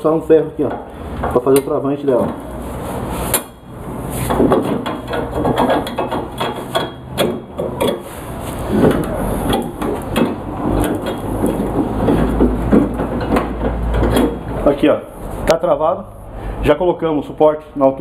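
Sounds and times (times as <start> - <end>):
steel parts clanking and knocking: 4.3 - 8.1, 8.7 - 14.6.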